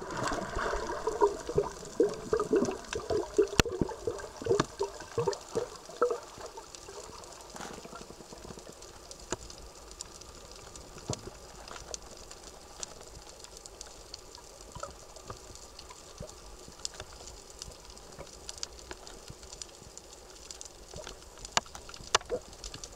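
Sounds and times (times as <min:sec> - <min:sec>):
bubbling gurgles: 0:00.0 - 0:08.8
underwater hiss: 0:00.0 - 0:13.2.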